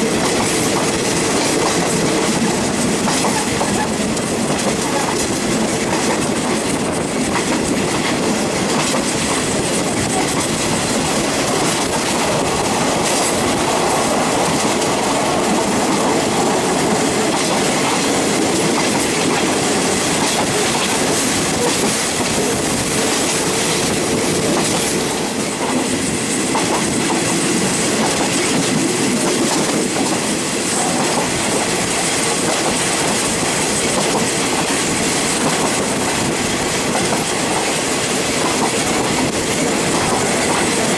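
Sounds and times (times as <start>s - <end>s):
clickety-clack of rail joints: 0.0s - 40.9s
train wheels rumbling on rail: 0.0s - 40.9s.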